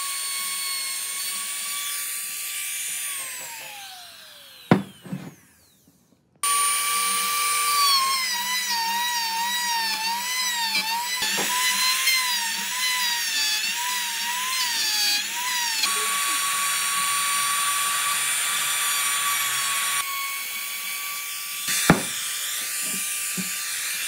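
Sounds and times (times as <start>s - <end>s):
router bit cutting wood: 0.0s - 5.8s, 6.4s - 24.0s
router whine: 0.0s - 24.0s
sharp knock: 4.7s - 5.2s, 21.9s - 22.2s.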